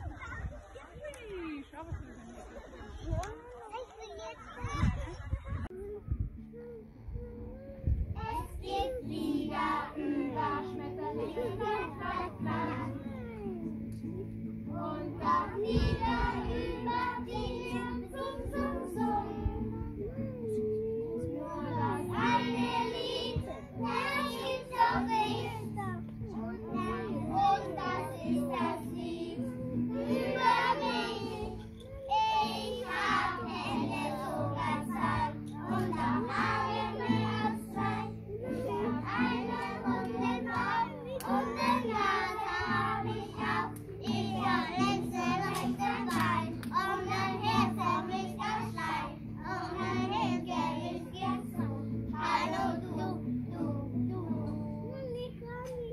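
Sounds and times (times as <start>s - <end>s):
children singing: 8.2s - 55.3s.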